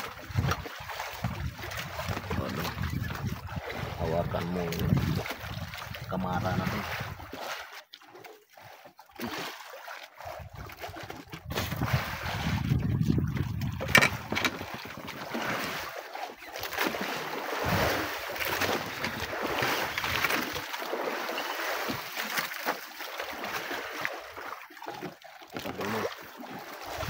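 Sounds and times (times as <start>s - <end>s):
wind on microphone: 0.0s - 7.3s, 10.3s - 15.0s, 17.6s - 20.3s
water slapping against boat hull: 0.0s - 27.0s.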